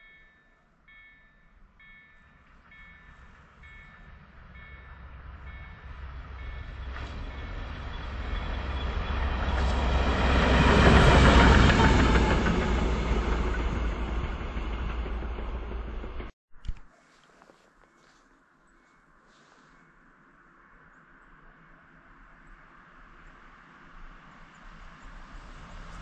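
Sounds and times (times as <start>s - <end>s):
diesel locomotive passing: 0.9s - 16.3s, 23.8s - 26.0s.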